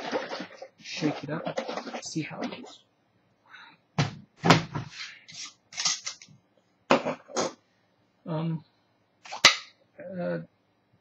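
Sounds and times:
juice container shaken: 0.0 - 2.7.

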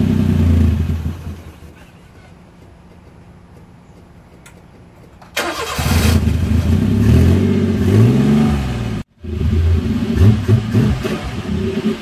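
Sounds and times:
engine cranking and starting: 5.3 - 6.4
engine revving unevenly: 5.4 - 12.0.

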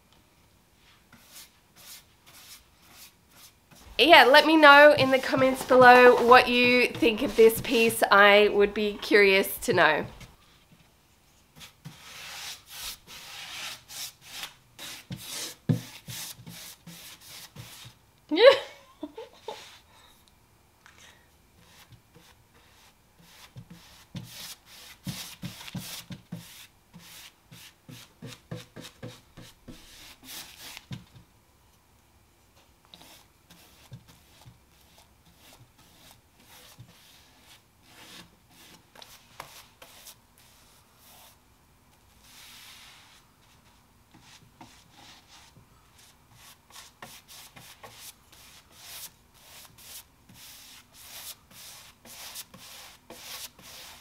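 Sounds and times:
paintbrush strokes swishing: 42.2 - 53.9.

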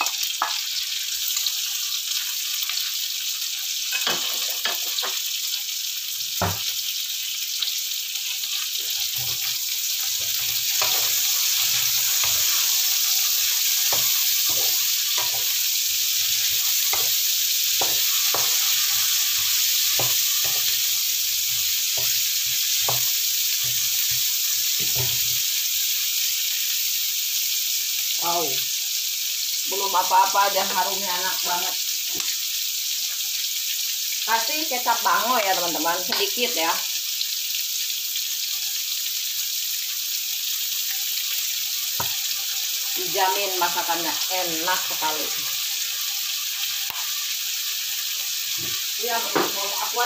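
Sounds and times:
food sizzling in oil: 0.0 - 50.0
wooden spatula scraping wok: 8.8 - 20.8.

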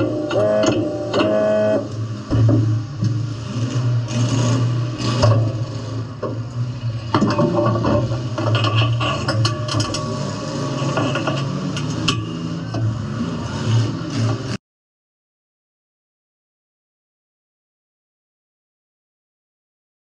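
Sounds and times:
horn honking short blasts: 0.0 - 1.9.

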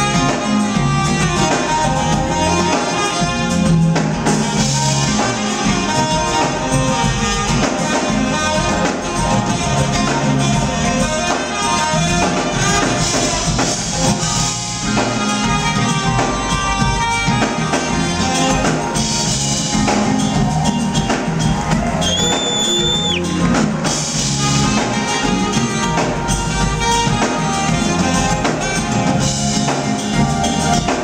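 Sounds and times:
drum kit: 0.0 - 31.0
electric bass: 0.0 - 31.0
electric guitar: 0.0 - 31.0
saxophone: 0.0 - 31.0
high whistle: 22.0 - 23.3.

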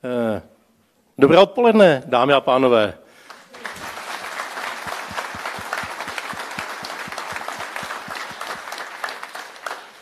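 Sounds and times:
audience applauding: 3.3 - 10.0
rhythmic clapping beat: 3.6 - 10.0.

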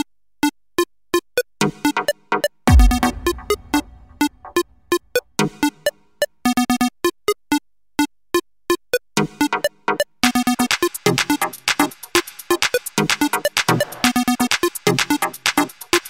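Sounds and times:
deep boom: 2.7 - 4.6.

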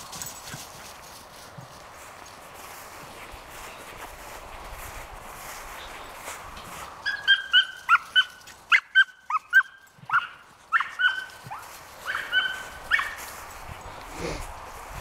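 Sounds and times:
small dog yipping: 7.0 - 13.2.

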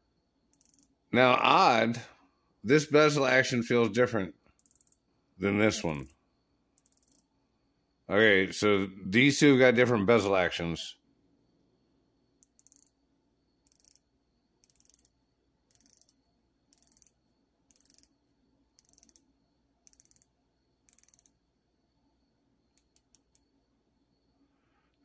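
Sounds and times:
watch bezel ratchet clicking: 0.5 - 0.9, 4.6 - 5.0, 6.8 - 7.2, 12.4 - 13.0, 13.6 - 21.4, 22.7 - 23.5.

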